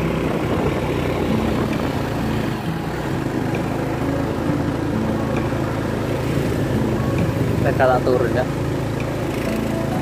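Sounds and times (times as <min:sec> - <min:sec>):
motorcycle engine running: 0:00.0 - 0:10.0
wind and road noise: 0:00.0 - 0:10.0.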